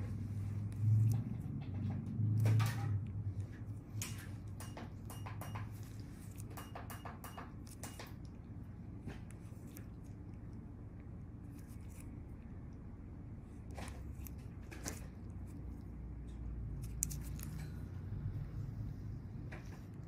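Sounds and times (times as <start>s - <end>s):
low steady hum: 0.0s - 20.0s
metal tool clicks and taps: 4.0s - 5.7s.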